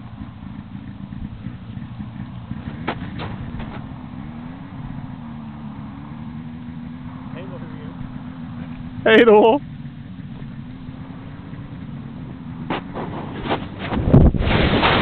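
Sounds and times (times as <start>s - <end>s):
distant snowmobile engine: 0.0s - 15.0s
wind buffeting microphone: 10.4s - 15.0s.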